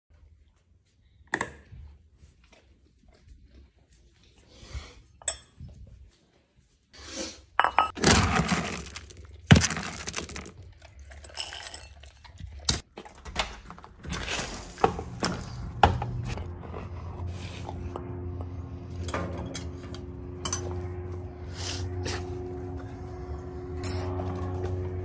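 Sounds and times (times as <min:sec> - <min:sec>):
dry kibble pouring into bowl: 0:08.0 - 0:10.6
bowl and scoop clinking: 0:11.1 - 0:12.4.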